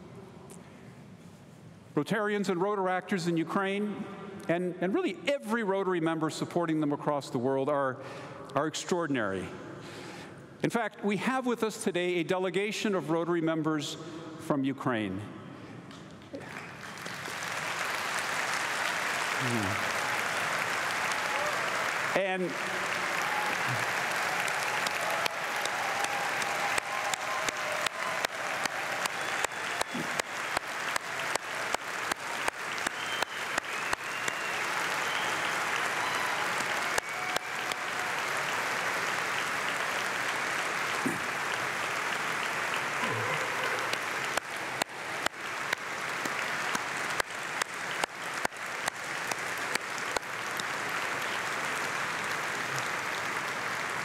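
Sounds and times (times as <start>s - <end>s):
audience applauding: 16.3s - 54.0s
rhythmic unison clapping: 16.3s - 54.0s.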